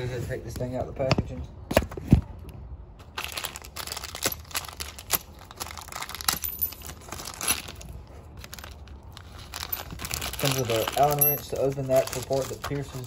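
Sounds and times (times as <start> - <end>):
packaging crinkling: 3.1 - 13.0.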